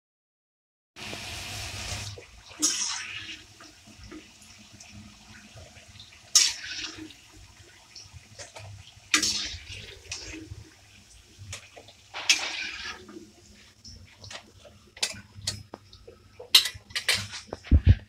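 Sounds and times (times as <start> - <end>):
oil sizzling while deep-frying: 1.0 - 17.7
metal skimmer scraping: 12.1 - 13.7.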